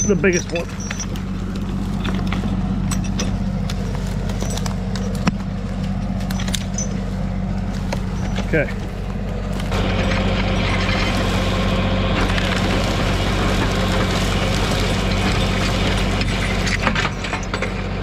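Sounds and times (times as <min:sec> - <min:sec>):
winch reeling in cable: 0:00.0 - 0:01.3
brush rustling and cracking: 0:00.0 - 0:17.8
tractor diesel engine running: 0:00.0 - 0:18.0.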